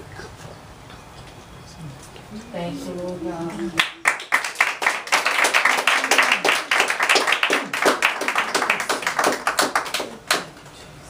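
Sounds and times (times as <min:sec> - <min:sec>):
people clapping: 0:03.1 - 0:10.8.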